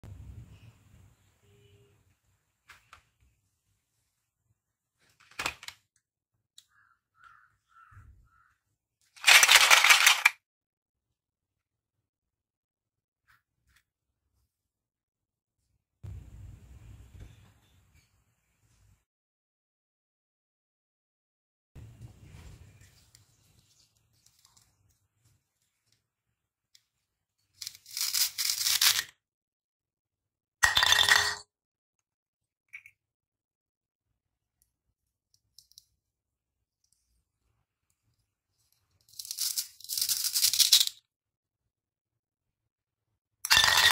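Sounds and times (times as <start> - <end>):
plastic toys rattling in basket: 9.2 - 10.4, 27.6 - 29.1, 39.1 - 41.0.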